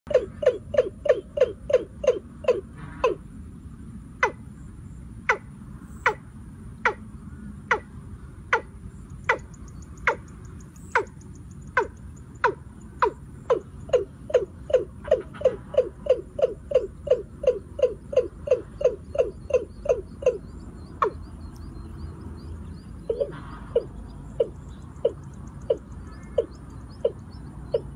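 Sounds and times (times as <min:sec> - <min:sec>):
bird calling low falling notes: 0:08.5 - 0:27.9.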